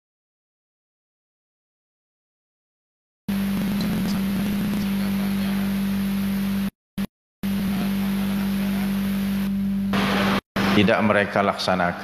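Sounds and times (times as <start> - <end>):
electrical buzz with hiss: 3.3 - 6.7, 7.4 - 10.4.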